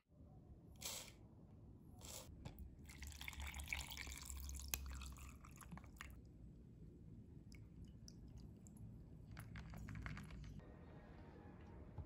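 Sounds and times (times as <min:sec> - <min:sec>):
water pouring into plastic cup: 0:02.9 - 0:06.2.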